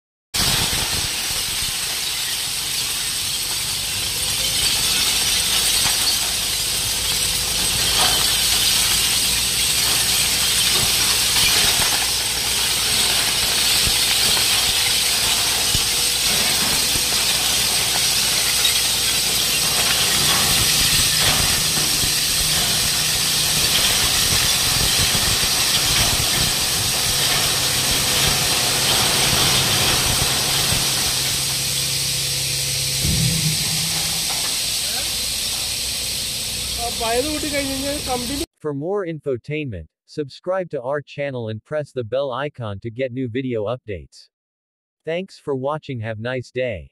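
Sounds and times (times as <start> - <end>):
broken glass and rubble pouring: 0.4 - 38.5
truck engine humming: 1.7 - 38.4.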